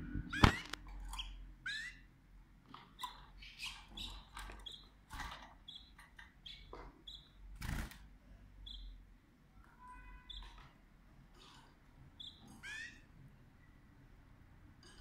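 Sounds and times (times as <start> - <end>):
canaries chirping: 0.0 - 14.2
wings fluttering and rustling in cage: 7.5 - 8.1.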